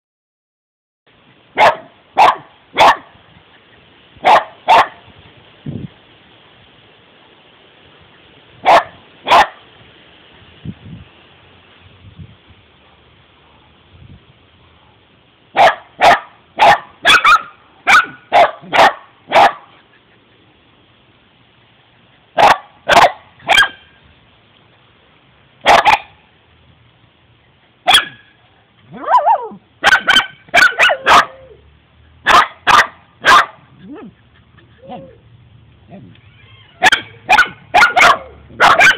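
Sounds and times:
dogs barking: 0:01.6 - 0:03.1, 0:04.2 - 0:05.0, 0:08.6 - 0:09.6, 0:15.6 - 0:20.2, 0:22.4 - 0:23.8, 0:25.6 - 0:26.2, 0:27.8 - 0:28.3, 0:28.9 - 0:31.5, 0:32.2 - 0:35.2, 0:36.8 - 0:38.9
dog whining: 0:33.8 - 0:35.2, 0:35.9 - 0:37.3.

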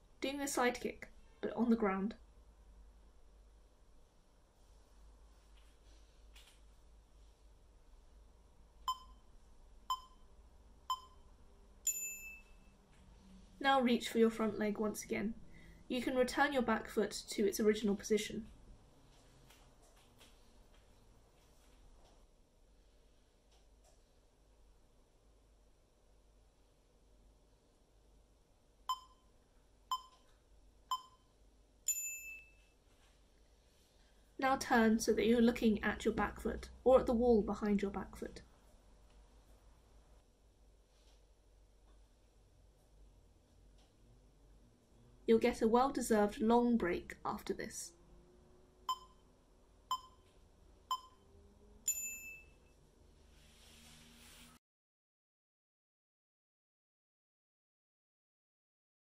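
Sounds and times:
countdown timer beeping: 0:08.9 - 0:09.2, 0:09.9 - 0:10.3, 0:10.9 - 0:11.2, 0:28.9 - 0:29.2, 0:29.9 - 0:30.2, 0:30.9 - 0:31.2, 0:48.9 - 0:49.2, 0:49.9 - 0:50.2, 0:50.9 - 0:51.2
faint hiss: 0:53.2 - 0:54.6.

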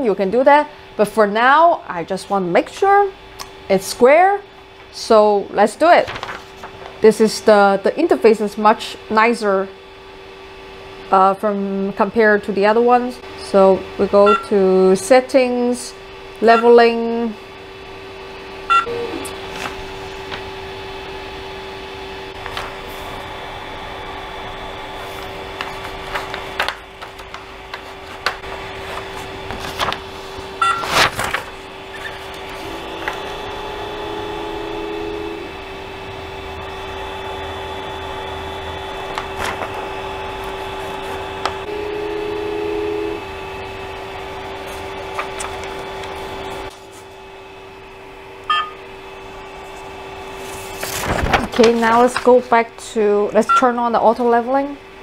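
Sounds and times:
printer humming: 0:16.0 - 0:55.0
stepper motor whine: 0:31.7 - 0:45.3.

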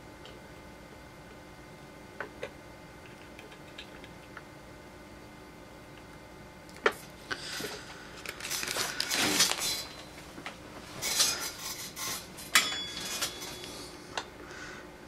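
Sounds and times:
rustling and scraping of tools: 0:07.5 - 0:14.1.

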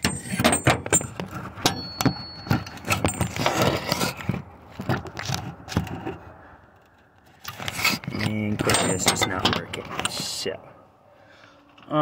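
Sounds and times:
clicks and scrapes: 0:00.0 - 0:10.3
light metallic jingling: 0:01.6 - 0:03.6.

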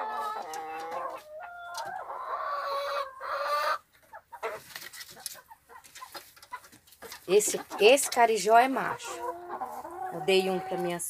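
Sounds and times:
chicken long drawn-out call: 0:00.0 - 0:03.8
chickens clucking: 0:00.0 - 0:11.0.

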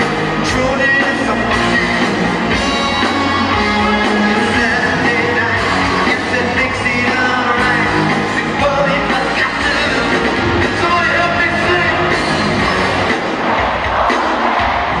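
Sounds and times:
live rock band playing: 0:00.0 - 0:15.0
man singing: 0:00.4 - 0:02.0, 0:03.4 - 0:13.0.

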